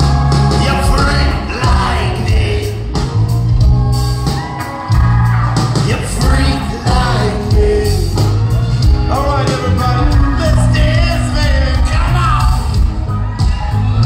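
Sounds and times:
live band playing amplified music: 0:00.0 - 0:14.0
man singing into microphone: 0:00.6 - 0:02.4.

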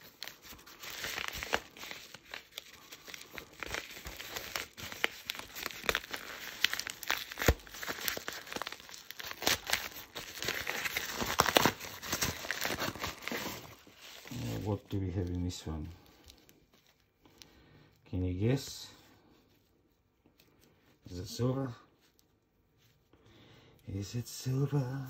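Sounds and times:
packaging tearing and crinkling: 0:00.0 - 0:14.8.

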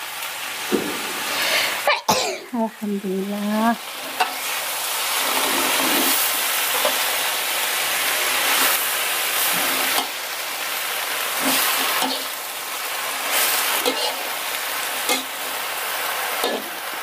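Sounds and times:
flowers sizzling in a wok: 0:00.0 - 0:17.0
metal spatula scraping wok: 0:04.1 - 0:07.1.

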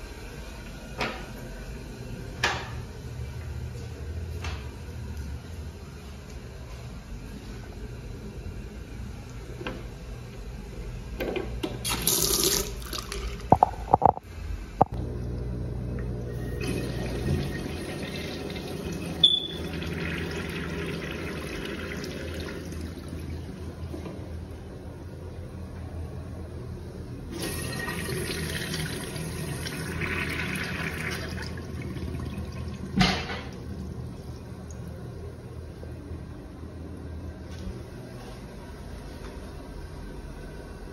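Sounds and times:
water running into a sink: 0:11.9 - 0:14.2, 0:16.4 - 0:23.4, 0:27.3 - 0:34.1.

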